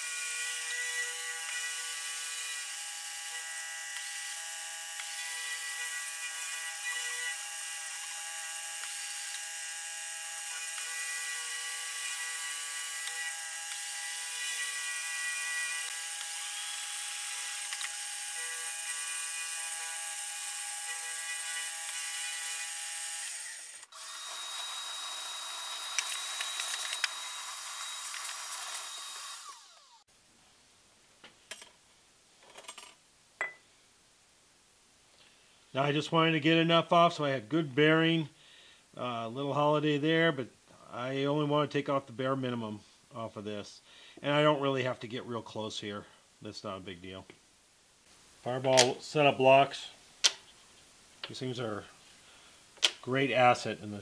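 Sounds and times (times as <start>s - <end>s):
milling machine cutting metal: 0.0s - 29.9s.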